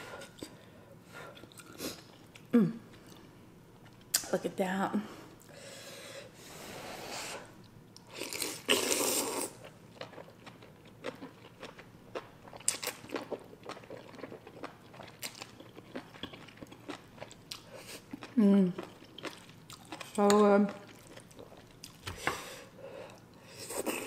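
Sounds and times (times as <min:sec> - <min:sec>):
person slurping noodles: 0:08.2 - 0:09.6
chewing with wet mouth clicks: 0:10.0 - 0:22.1.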